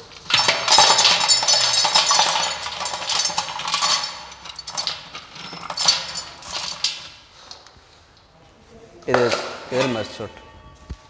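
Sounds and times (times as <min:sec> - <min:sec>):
hard pieces clattering on metal: 0:00.0 - 0:07.2.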